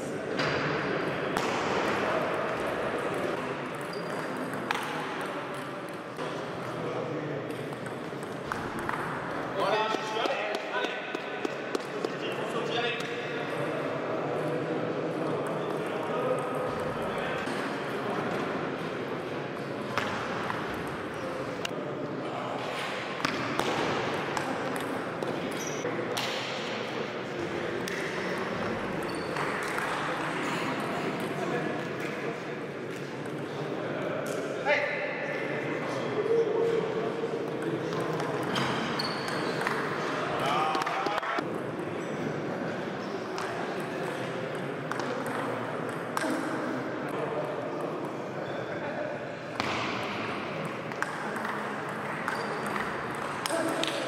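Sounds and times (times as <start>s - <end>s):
steady background noise: 0.0s - 54.0s.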